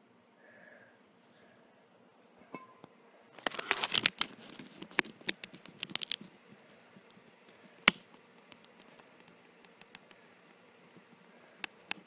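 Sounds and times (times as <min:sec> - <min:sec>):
rustling: 0:03.3 - 0:09.8.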